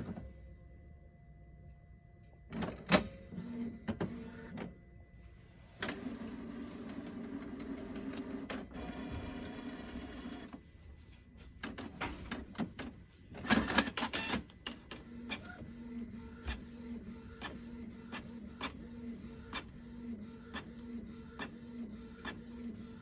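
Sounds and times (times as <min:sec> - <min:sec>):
printer motor whir: 0:02.4 - 0:04.8, 0:05.6 - 0:10.7, 0:11.6 - 0:23.0
printer clicks and clacks: 0:02.5 - 0:04.7, 0:05.8 - 0:10.6, 0:11.6 - 0:23.0
printer ticking: 0:05.8 - 0:10.6, 0:11.6 - 0:23.0.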